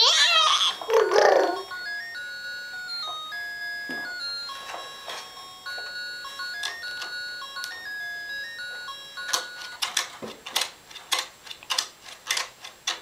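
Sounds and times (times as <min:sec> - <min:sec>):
electronic toy beeping tune: 0:00.0 - 0:09.8.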